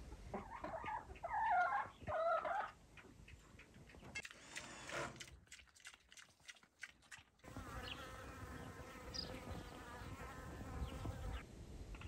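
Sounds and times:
insect buzzing: 7.5s - 11.4s.

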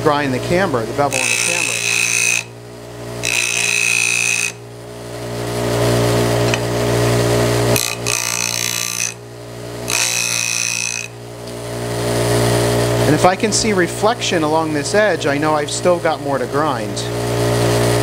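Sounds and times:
bench grinder motor hum: 0.0s - 13.3s.

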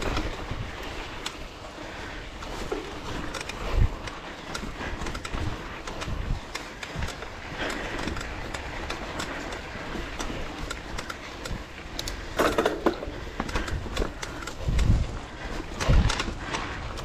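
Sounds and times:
dirt bike engine: 0.0s - 17.0s
knocks and rattles: 12.3s - 15.0s.

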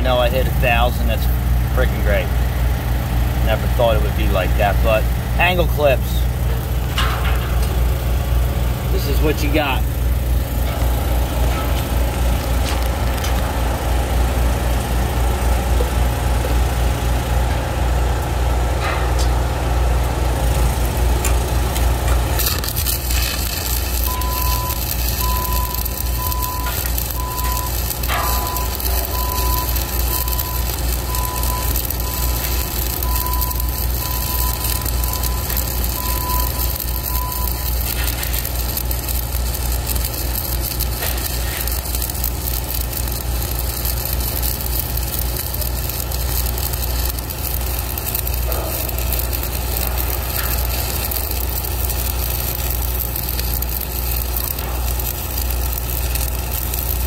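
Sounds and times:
low engine drone: 0.0s - 57.0s
welding arc crackling sizzle: 0.0s - 57.0s
beeping alarm: 24.0s - 37.7s.

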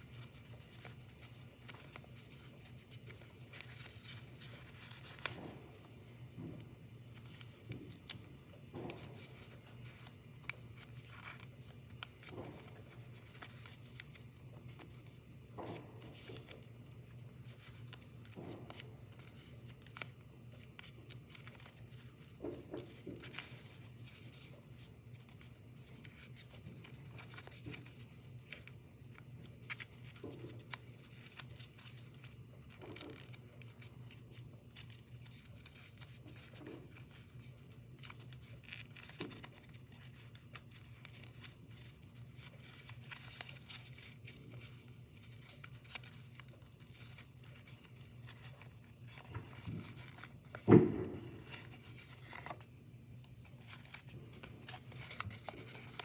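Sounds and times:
paper rustling and creasing: 0.0s - 56.0s.

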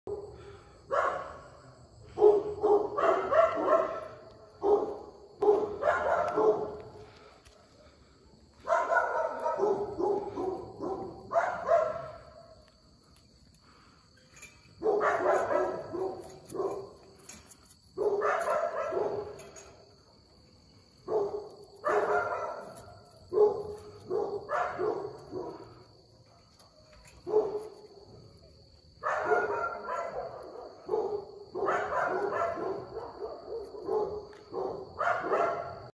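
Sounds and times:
dogs barking: 0.1s - 7.2s, 8.6s - 12.6s, 14.8s - 17.0s, 18.0s - 19.8s, 21.0s - 27.8s, 29.0s - 35.9s.

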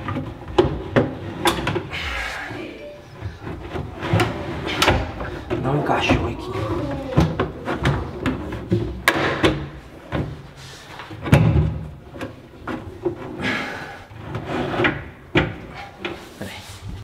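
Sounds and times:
drawer sliding on metal slides: 3.2s - 16.3s
drawer clacks and knocks: 11.2s - 13.2s.

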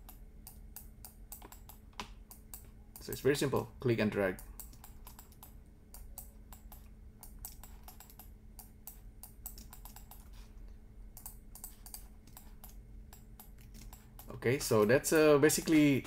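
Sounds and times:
keyboard and mouse clicking: 0.0s - 3.3s, 4.4s - 10.4s, 11.1s - 14.9s
faint low hum: 0.0s - 16.0s.

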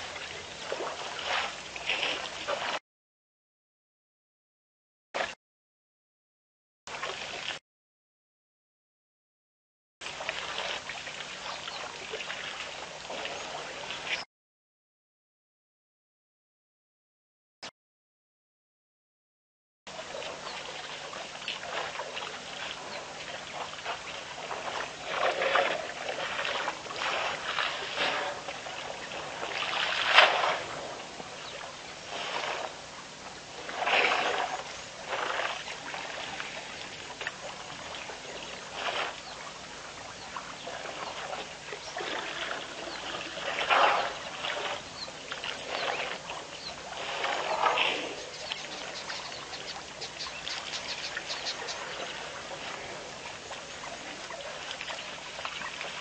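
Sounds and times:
water splashing and trickling: 0.0s - 2.8s, 6.9s - 7.6s, 10.0s - 14.3s, 19.9s - 56.0s.

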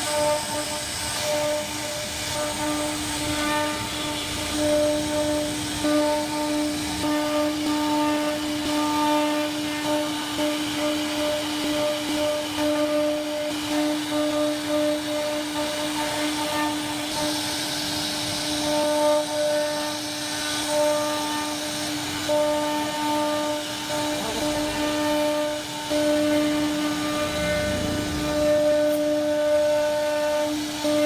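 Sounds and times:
router bit carving wood: 0.0s - 31.0s
router spindle whining: 0.0s - 31.0s.

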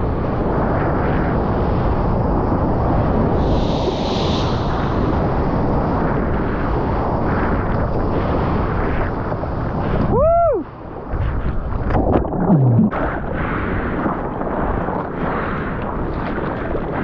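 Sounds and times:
wind buffeting microphone: 0.0s - 17.0s
heavy surf breaking: 2.0s - 17.0s
low tone dropping in pitch: 12.0s - 12.9s.

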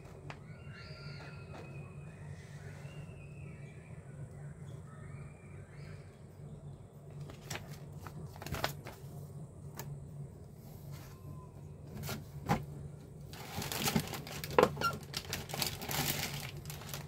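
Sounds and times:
low steady hum: 0.0s - 17.0s
paper rustling and crinkling: 7.2s - 9.9s, 13.3s - 17.0s.

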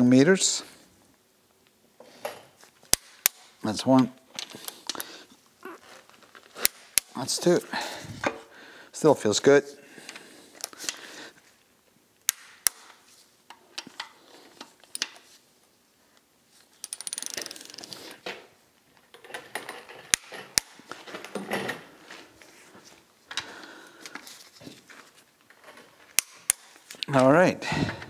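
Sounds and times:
torque wrench ratchet clicks: 16.8s - 17.8s.

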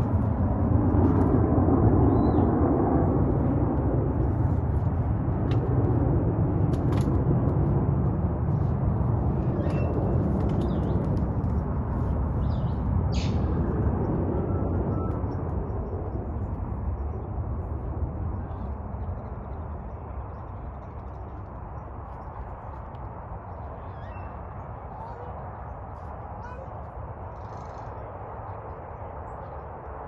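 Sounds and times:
low rumbling outdoor noise: 0.0s - 30.0s
faint bird chirps: 23.7s - 25.3s.

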